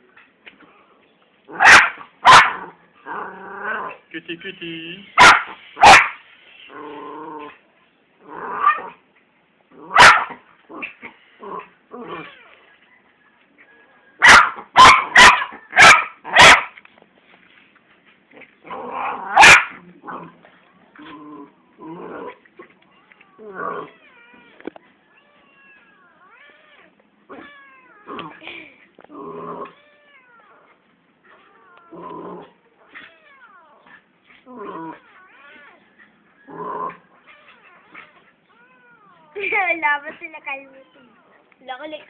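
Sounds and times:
dog yapping: 1.5 - 2.7, 5.2 - 6.2, 9.9 - 11.2, 14.2 - 16.8, 18.7 - 19.8, 32.8 - 34.1, 34.9 - 39.6
rough growly sounds: 2.6 - 4.1, 6.6 - 9.0, 18.3 - 22.8, 23.4 - 24.1, 27.3 - 29.8, 31.3 - 33.2, 33.8 - 37.3
kitten mewing: 25.4 - 28.6.

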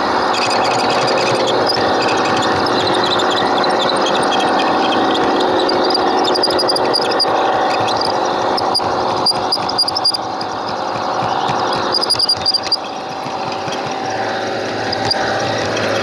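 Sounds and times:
model train motor whirring: 0.0 - 16.0
sharp clicks: 0.0 - 16.0.

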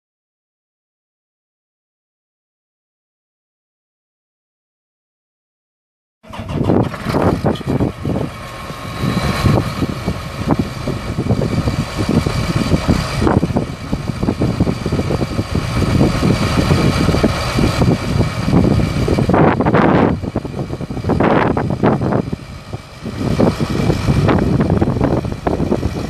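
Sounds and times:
steady whine: 6.2 - 26.0
tractor diesel engine running: 6.2 - 26.0.

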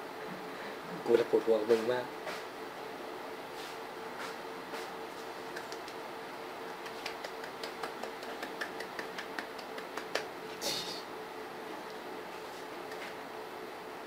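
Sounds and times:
faint steady hum: 0.0 - 14.0
hand clapping: 5.5 - 6.0, 6.7 - 10.3.

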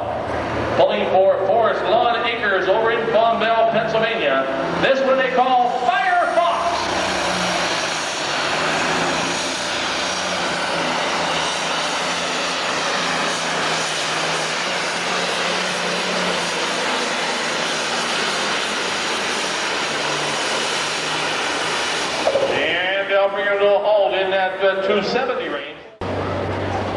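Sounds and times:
tractor diesel engine droning: 0.0 - 26.9.

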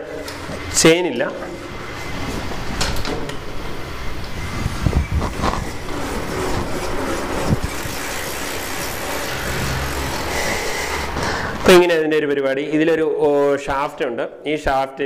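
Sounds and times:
bicycle drivetrain running: 0.2 - 11.7.

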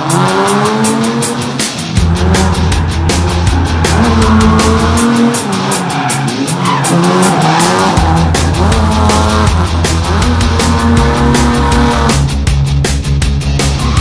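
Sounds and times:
car engine revving: 0.0 - 14.0
music with heavy pulsing beat: 0.0 - 14.0
tyres squealing: 2.0 - 11.8.

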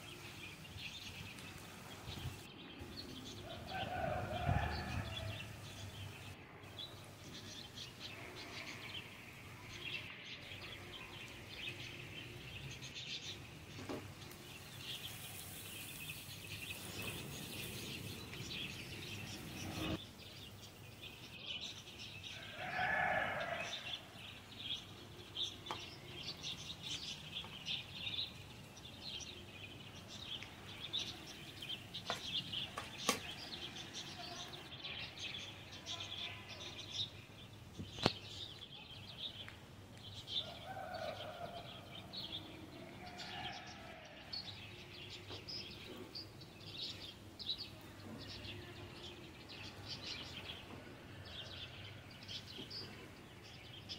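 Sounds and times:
small birds chirping: 0.0 - 53.9
food sizzling in a wok: 14.6 - 18.1
loud long bird call: 22.3 - 24.2.

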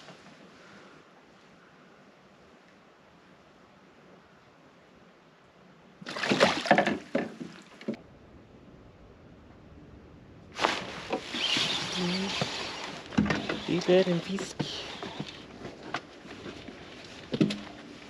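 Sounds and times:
water splashing: 6.0 - 8.0.

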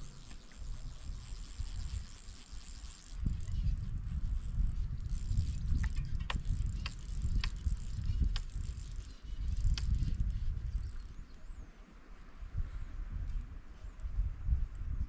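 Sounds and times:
fishing reel ratchet clicks: 0.0 - 11.4
wind on microphone: 0.0 - 11.7, 12.3 - 15.0.

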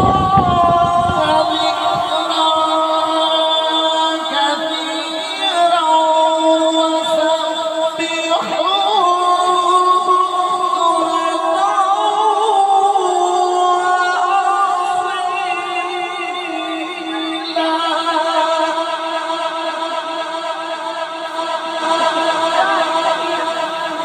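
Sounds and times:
man reciting melodically: 0.0 - 24.0.

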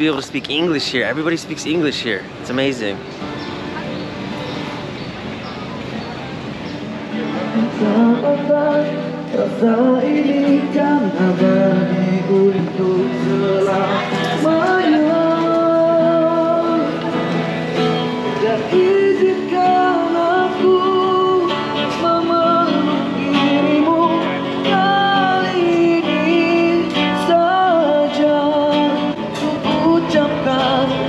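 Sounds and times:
acoustic guitar: 0.0 - 31.0
man singing a ballad: 7.4 - 17.2, 18.2 - 31.0.

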